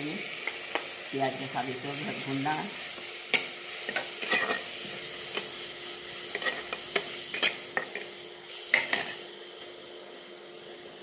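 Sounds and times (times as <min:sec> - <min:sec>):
onions sizzling in oil: 0:00.0 - 0:11.0
metal spatula scraping pan: 0:03.3 - 0:04.8, 0:06.3 - 0:08.0.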